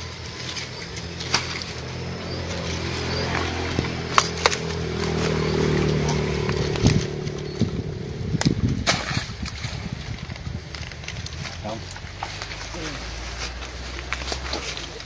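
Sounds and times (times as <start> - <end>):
small engine running steadily: 0.0 - 8.9.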